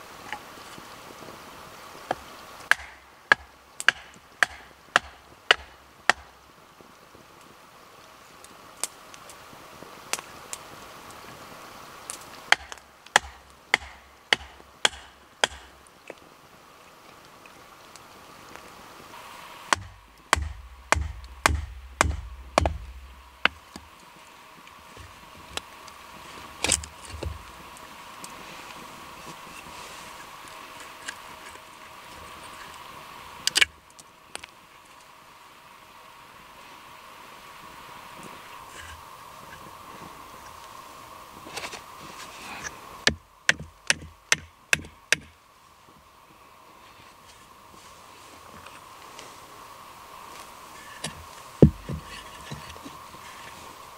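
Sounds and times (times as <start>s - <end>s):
wooden baton knocking on hatchet: 12.5s - 15.7s, 19.7s - 23.0s, 51.6s - 52.1s
light rustling: 50.3s - 53.9s.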